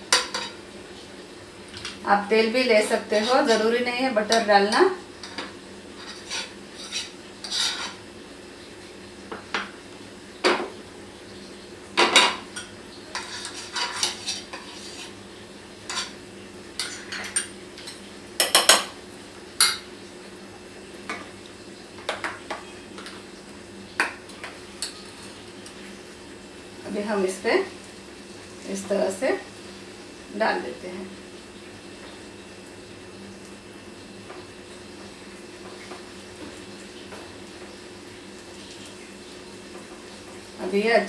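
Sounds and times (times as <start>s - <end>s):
utensil scraping a pan: 3.0s - 3.7s, 5.2s - 8.0s, 13.1s - 15.2s.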